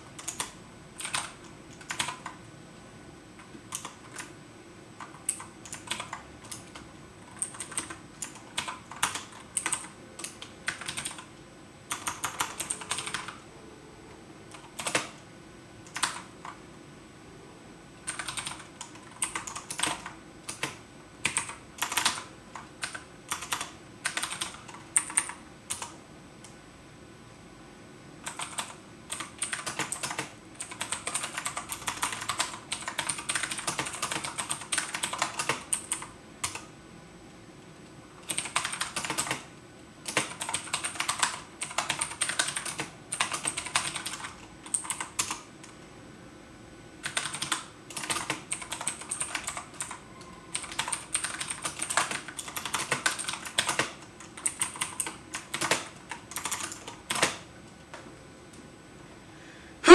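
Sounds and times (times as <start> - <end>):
computer keyboard typing: 0.0 - 2.4, 3.4 - 4.4, 5.0 - 11.3, 11.9 - 13.4, 14.5 - 15.2, 15.8 - 16.6, 18.0 - 26.6, 28.2 - 36.7, 38.2 - 45.8, 47.0 - 57.5.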